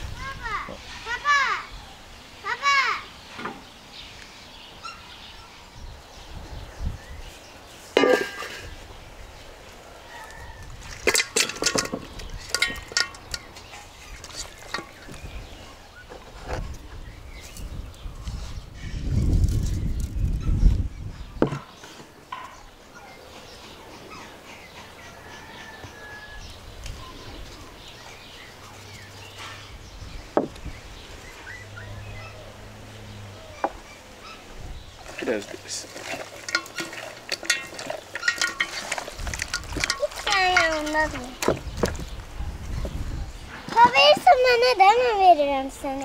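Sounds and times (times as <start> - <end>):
birds chirping: 0.0 - 46.0
metal colander and basin clinking: 8.0 - 8.8, 10.9 - 15.1, 35.0 - 41.6.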